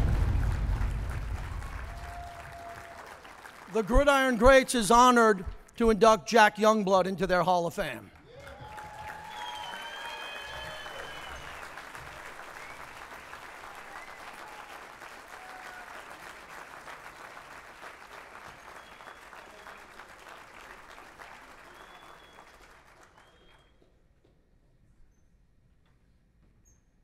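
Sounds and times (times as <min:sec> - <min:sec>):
audience applauding: 0:00.0 - 0:05.4, 0:08.1 - 0:23.7.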